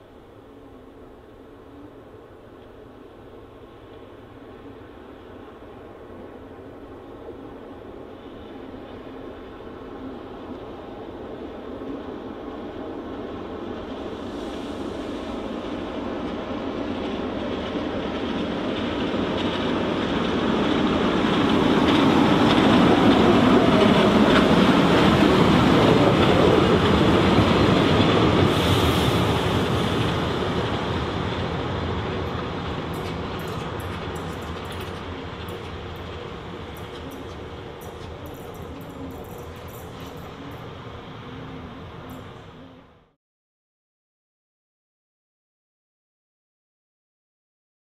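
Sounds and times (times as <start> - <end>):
train wheels rolling on rails: 2.5 - 42.9.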